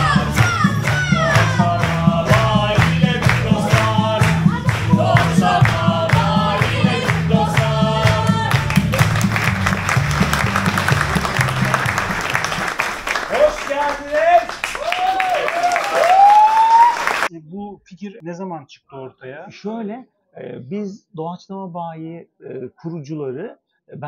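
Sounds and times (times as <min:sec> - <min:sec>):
song with singing and bass: 0:00.0 - 0:12.2
audience applause: 0:00.0 - 0:17.3.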